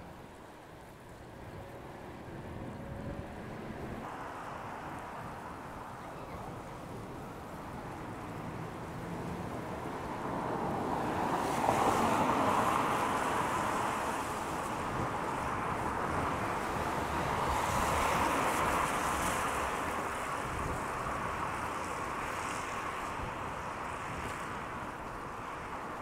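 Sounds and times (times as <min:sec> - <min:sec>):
rain on wet street: 0:00.0 - 0:02.6, 0:03.2 - 0:26.0.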